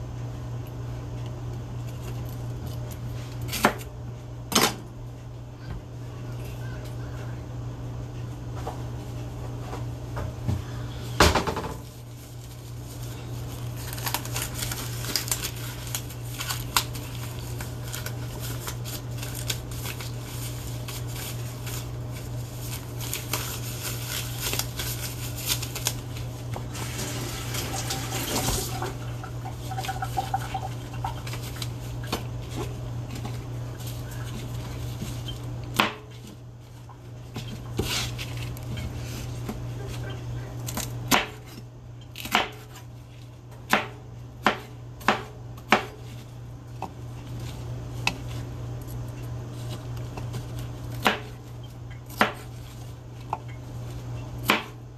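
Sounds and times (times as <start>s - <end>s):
steady low hum: 0.0s - 54.9s
tap water running: 26.7s - 31.3s.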